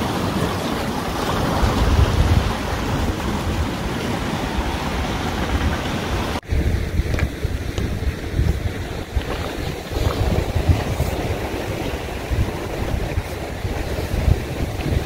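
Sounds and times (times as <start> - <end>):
waves on rocky shore: 0.0 - 15.0
wind buffeting microphone: 0.0 - 15.0.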